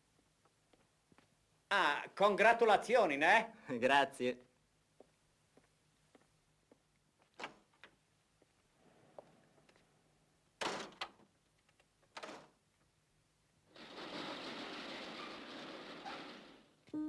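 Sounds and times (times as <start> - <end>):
door opening and shutting: 7.4 - 7.9, 10.6 - 11.3, 12.1 - 12.6, 13.7 - 16.8.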